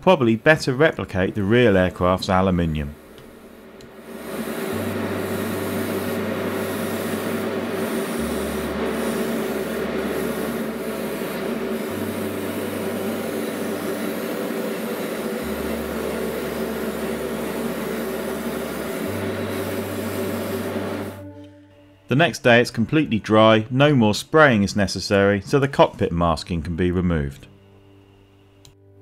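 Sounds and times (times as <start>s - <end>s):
steady hum: 0.0s - 22.7s
airbrush spraying hiss: 2.7s - 21.2s.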